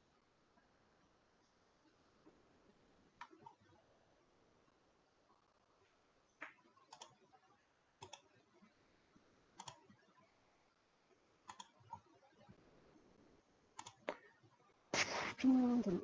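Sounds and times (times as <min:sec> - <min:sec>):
faint computer mouse clicks: 0:13.8 - 0:14.2.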